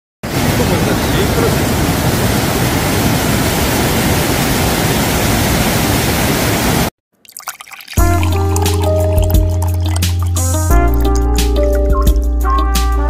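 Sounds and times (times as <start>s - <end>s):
rushing waterfall water: 0.2s - 6.9s.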